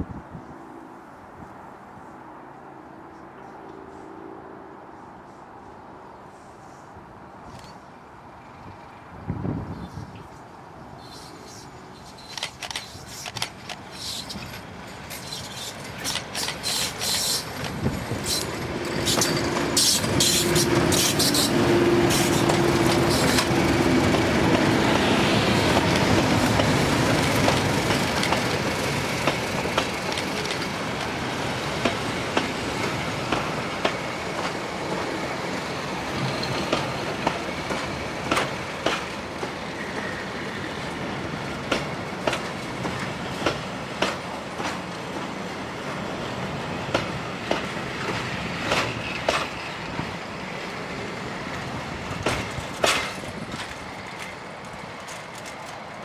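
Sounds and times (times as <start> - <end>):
diesel locomotives passing: 0.0 - 56.0
train wheels clicking over rail joints: 11.0 - 35.1, 36.1 - 40.2, 41.6 - 45.3, 46.9 - 50.2, 52.1 - 56.0.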